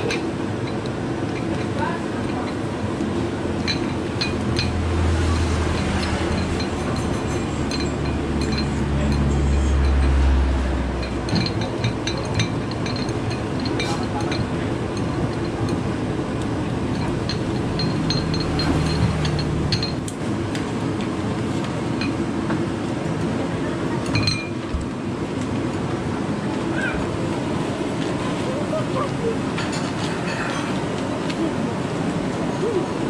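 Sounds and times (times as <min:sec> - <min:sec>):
steady background noise: 0:00.0 - 0:33.0
strainer and chopsticks clinking bowls: 0:05.7 - 0:10.2, 0:17.0 - 0:20.0.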